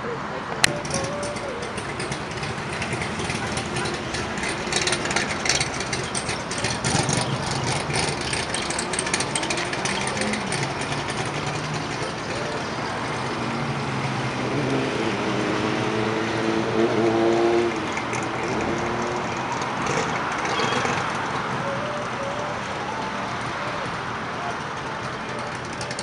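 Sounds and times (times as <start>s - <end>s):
car engines pulling away: 0.0s - 26.0s.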